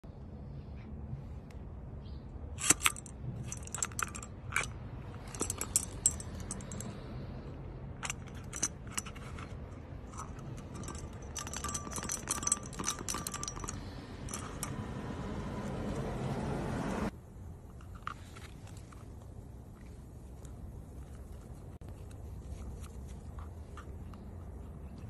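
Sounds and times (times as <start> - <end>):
metal staples clinking: 2.6 - 6.9, 8.0 - 14.8.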